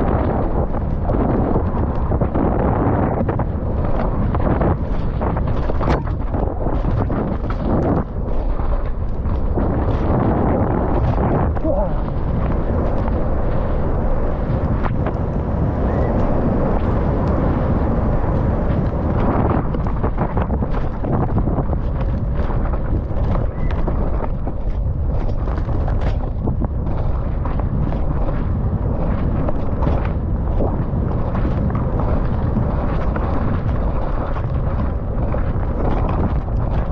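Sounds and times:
wind on microphone: 0:00.0 - 0:36.9.

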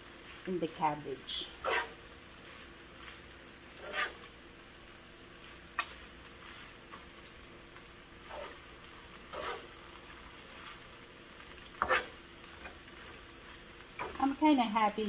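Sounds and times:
rice sizzling in a frying pan: 0:00.0 - 0:15.0
spoon scraping through rice: 0:01.6 - 0:03.2, 0:03.8 - 0:04.3, 0:08.2 - 0:08.6, 0:09.3 - 0:09.8, 0:11.8 - 0:13.2.

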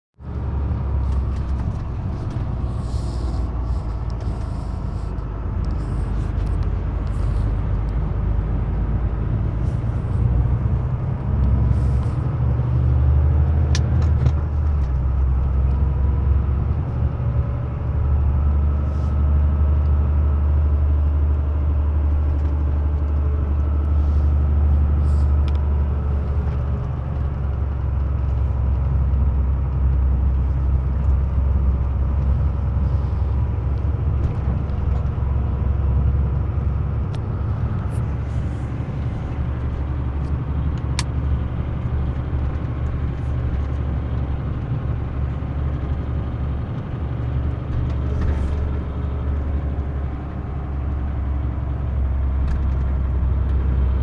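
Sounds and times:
engine and road drone: 0:00.2 - 0:54.0
light rattles and clicks: 0:37.0 - 0:53.6.

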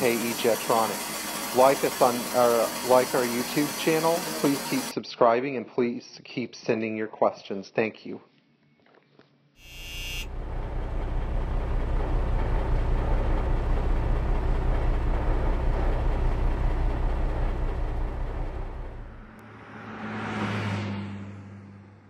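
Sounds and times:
steady low rumble: 0:10.3 - 0:19.4.

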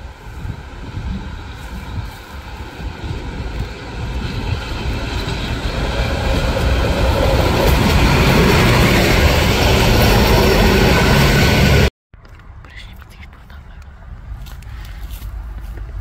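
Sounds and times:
diesel railcar engine: 0:00.0 - 0:12.5
train wheels rumbling on track: 0:00.0 - 0:16.0.

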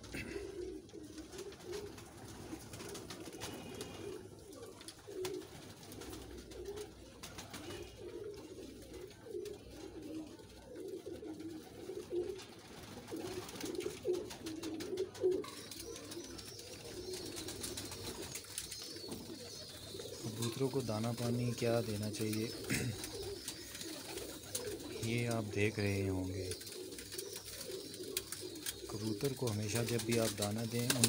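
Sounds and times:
pigeons cooing: 0:00.0 - 0:31.0
beaks pecking on tray: 0:13.1 - 0:31.0.

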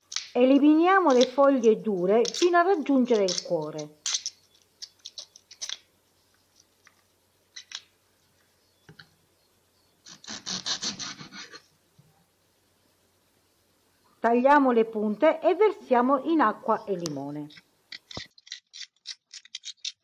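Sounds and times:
artichoke leaves snapping: 0:00.0 - 0:00.4, 0:01.0 - 0:05.9.

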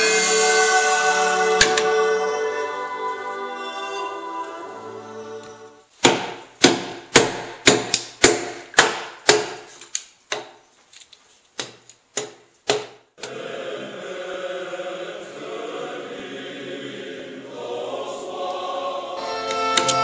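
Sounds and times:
chisel knocking wood: 0:06.0 - 0:09.7, 0:10.3 - 0:10.6, 0:11.6 - 0:13.0.

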